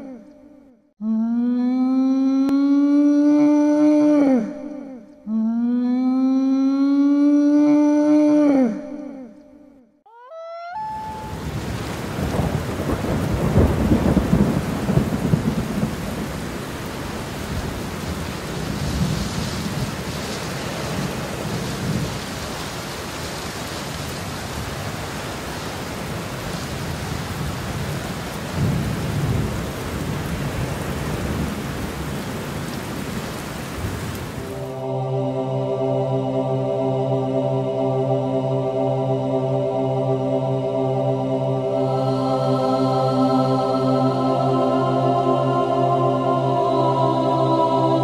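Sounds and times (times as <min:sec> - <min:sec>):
steady rain: 0:10.9 - 0:34.9
rolling thunder: 0:11.2 - 0:22.8, 0:25.9 - 0:34.6.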